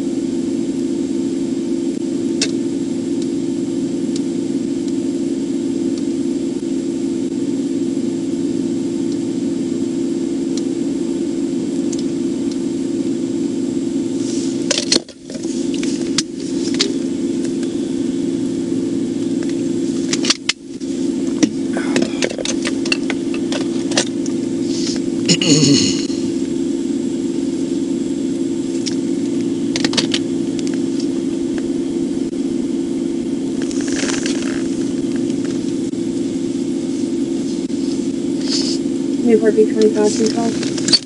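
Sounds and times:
car engine idling: 14.2 - 25.3, 33.2 - 39.2.

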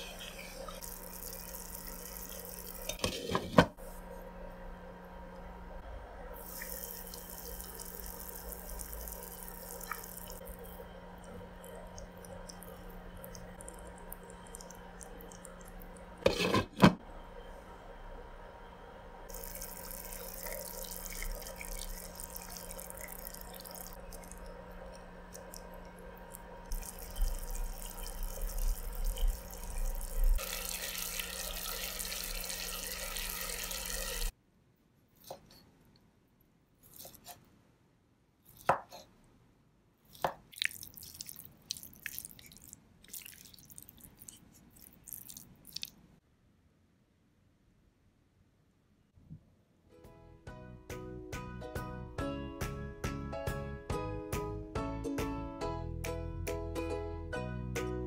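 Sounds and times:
liquid bubbling in a pan: 19.3 - 34.3.

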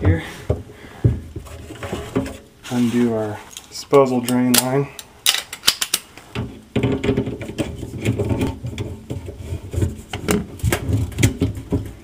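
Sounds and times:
plastic rubbing and creaking: 0.0 - 3.8, 5.3 - 12.0
sharp plastic clicks: 4.3 - 6.1.

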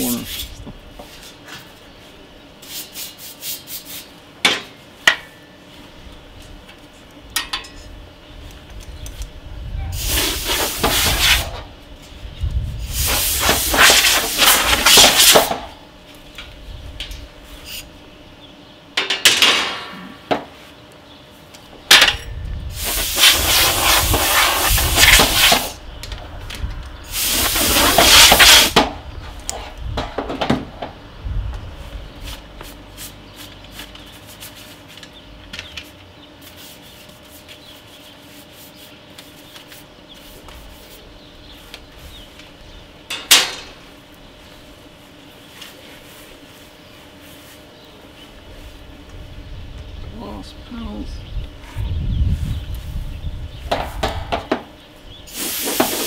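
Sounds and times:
compressed air blow gun hissing: 9.9 - 11.6, 12.6 - 15.6, 22.7 - 25.8, 27.0 - 28.8, 55.3 - 56.0.

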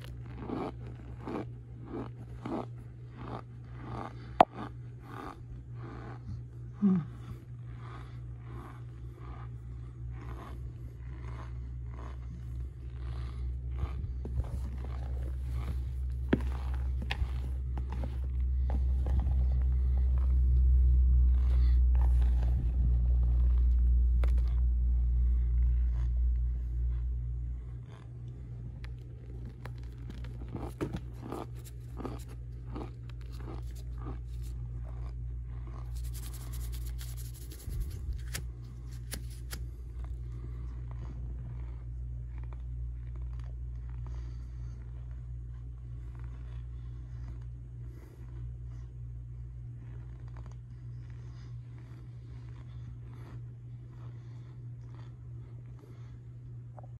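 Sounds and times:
cornstarch crunching and crackling: 0.0 - 6.2, 8.0 - 20.6, 27.9 - 44.1
low rumble: 4.2 - 57.0.

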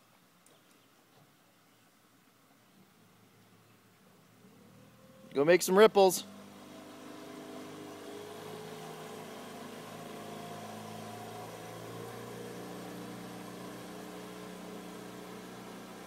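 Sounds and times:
outboard motor running: 4.4 - 16.0.

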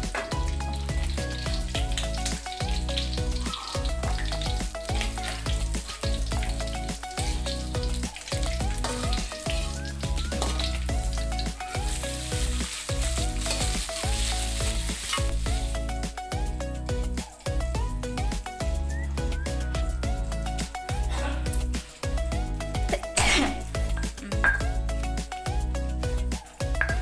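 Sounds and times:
background music with steady beat: 0.0 - 27.0
hot oil sizzling in a wok: 0.0 - 27.0
spatula stirring in a wok: 7.9 - 15.8.

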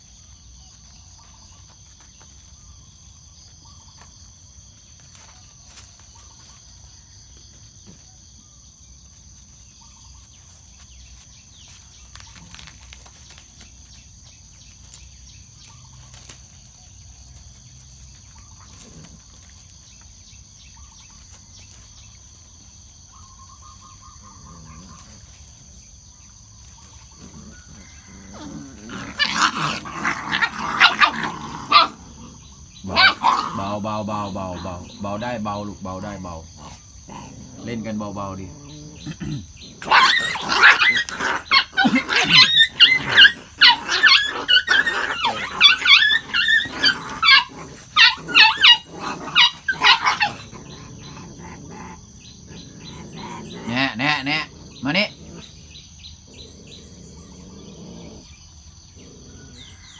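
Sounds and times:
insect drone: 0.0 - 59.9
puppies scuffling: 0.6 - 8.1, 9.4 - 25.7
puppy growls and yaps: 23.3 - 25.6, 26.6 - 34.9, 36.6 - 59.9.

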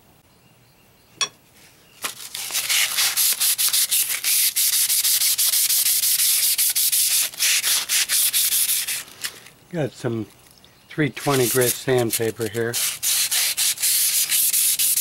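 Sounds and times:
sandpaper rubbing: 2.1 - 9.4, 11.2 - 15.0.

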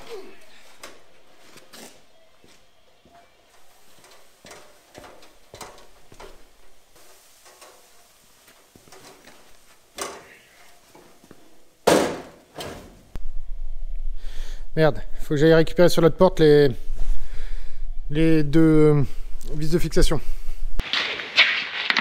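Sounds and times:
loud clunks: 11.8 - 13.0
low hum: 13.0 - 15.4.

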